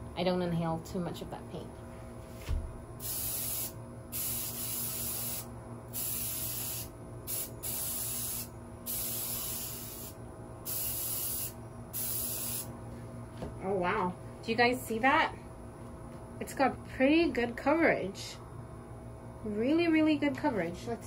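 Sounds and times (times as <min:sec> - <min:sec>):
spray paint can hissing: 0:03.0 - 0:12.7.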